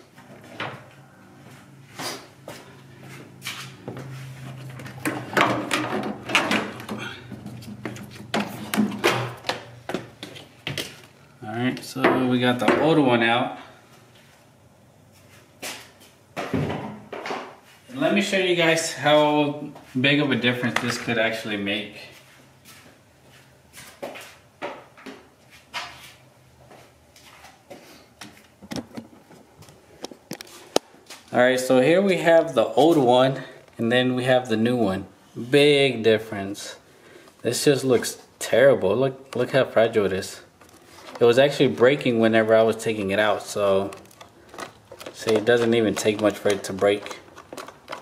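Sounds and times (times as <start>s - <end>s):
plastic panel knocking and scraping: 43.9s - 48.0s.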